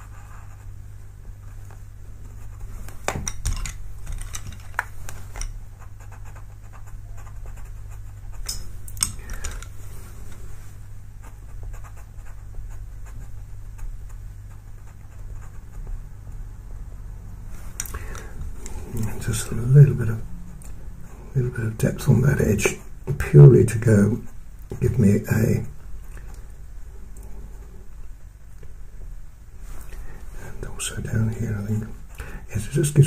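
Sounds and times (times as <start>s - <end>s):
steady low hum: 0.0s - 33.0s
pencil scratching on paper: 5.2s - 8.5s, 11.2s - 16.0s.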